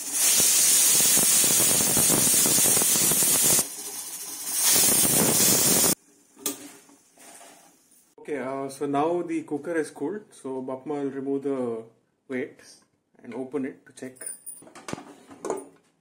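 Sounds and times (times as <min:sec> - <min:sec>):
pressure cooker whistling steam: 0:00.0 - 0:06.0.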